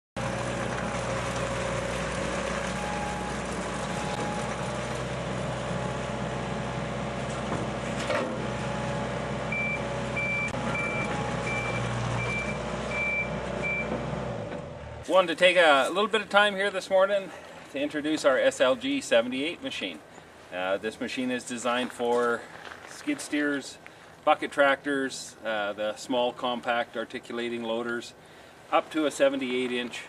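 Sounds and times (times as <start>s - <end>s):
heavy equipment running: 0.2s - 15.1s
reversing alarm beeping: 2.7s - 5.3s, 9.5s - 14.0s.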